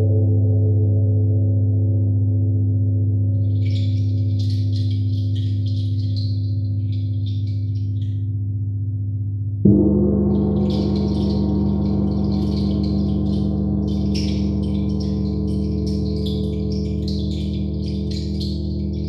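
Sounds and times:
large gong ringing: 9.7s - 19.0s
high metallic shimmer: 10.3s - 19.0s.

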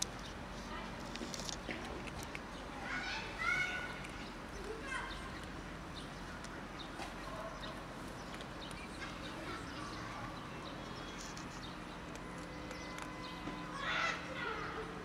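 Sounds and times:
cat chewing dry kibble: 1.0s - 2.6s.

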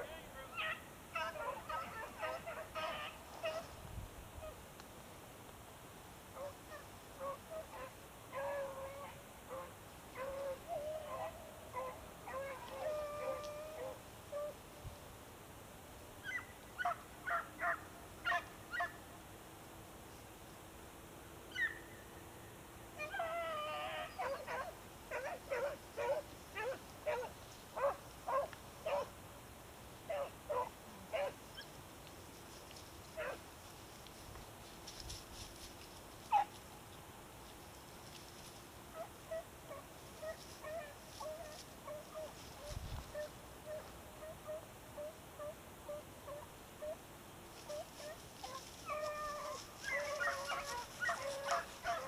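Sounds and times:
hunting dogs baying: 6.4s - 14.6s, 23.0s - 29.1s, 30.1s - 31.4s, 47.6s - 52.0s.

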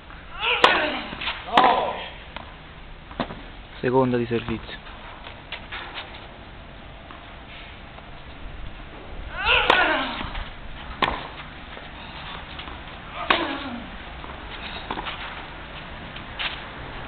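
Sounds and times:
tennis ball hits: 0.4s - 2.5s, 8.9s - 11.5s, 12.3s - 15.4s.

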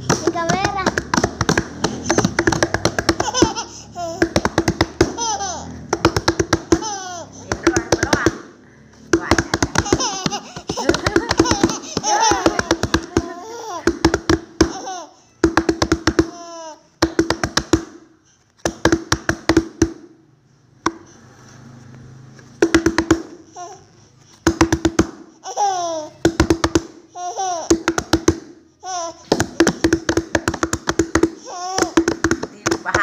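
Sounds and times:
hands slapping wooden table: 0.1s - 3.6s, 5.9s - 6.9s, 29.3s - 33.0s
baby squealing and laughing: 0.3s - 8.5s, 9.2s - 17.0s, 23.2s - 24.0s, 25.4s - 26.5s, 27.1s - 28.2s, 28.8s - 33.0s.

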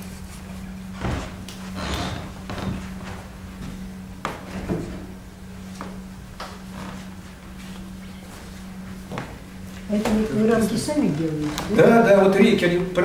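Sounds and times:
steady low hum: 0.0s - 13.0s
wooden knocks of frames: 0.9s - 5.1s.

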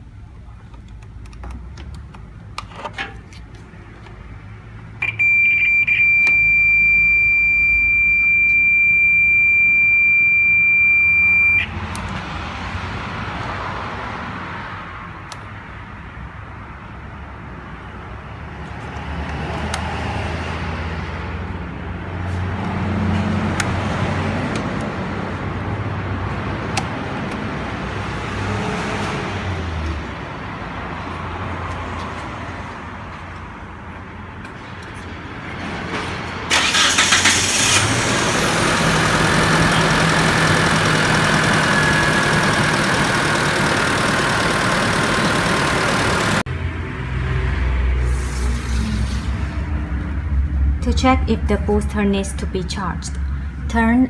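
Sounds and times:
short high-pitched beeps: 5.0s - 11.7s
continuous warning tone: 5.0s - 11.9s.

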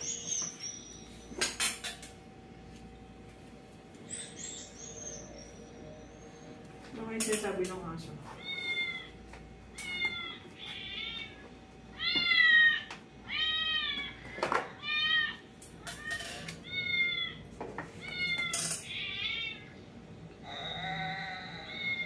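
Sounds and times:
dog whining: 4.0s - 6.6s.

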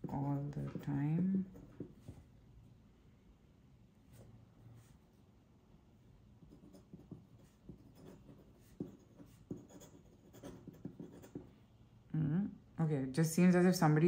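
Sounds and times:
pen nib scratching on paper: 6.5s - 11.5s.

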